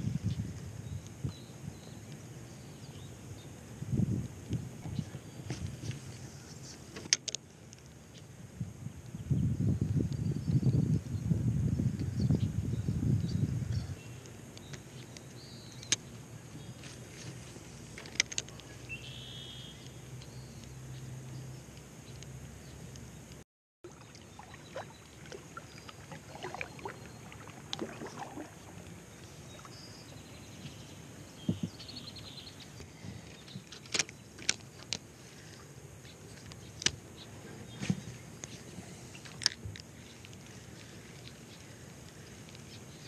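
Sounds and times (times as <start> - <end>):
water splashing against kayak: 23.8 - 30.3
paddle dipping in water: 23.8 - 30.8.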